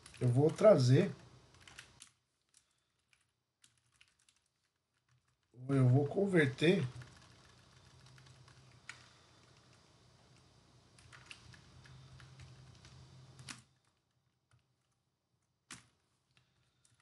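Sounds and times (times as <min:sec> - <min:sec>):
faint keyboard keystrokes: 0:01.5 - 0:05.5, 0:06.9 - 0:10.4, 0:11.0 - 0:17.0.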